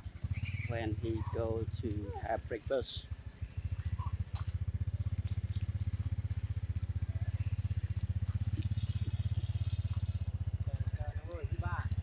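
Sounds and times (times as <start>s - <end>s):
small motorbike engine puttering: 3.2s - 12.0s.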